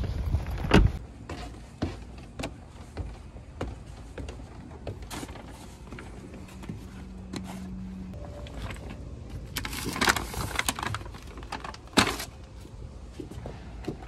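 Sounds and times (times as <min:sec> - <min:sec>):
footsteps on wooden deck: 0:00.1 - 0:08.2, 0:12.6 - 0:14.0.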